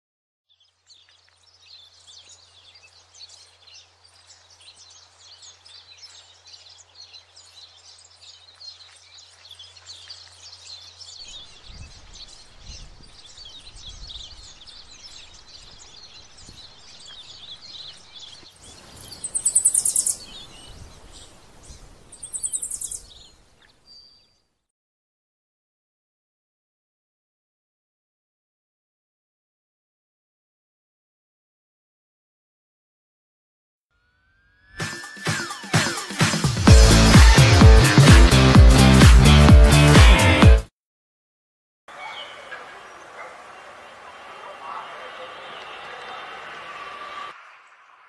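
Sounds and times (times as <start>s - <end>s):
small birds chirping and twittering: 0.5s - 24.7s, 34.1s - 38.2s, 41.9s - 48.0s.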